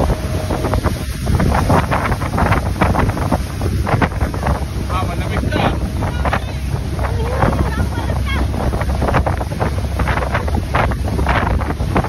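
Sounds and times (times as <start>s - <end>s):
low boat engine rumble: 0.0s - 12.0s
water splashing: 0.0s - 12.0s
wind buffeting microphone: 0.0s - 12.0s.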